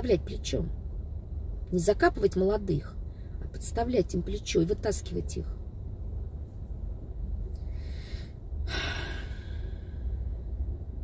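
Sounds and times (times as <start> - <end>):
low car cabin hum: 0.0 - 11.0
woman breathing: 7.6 - 10.4.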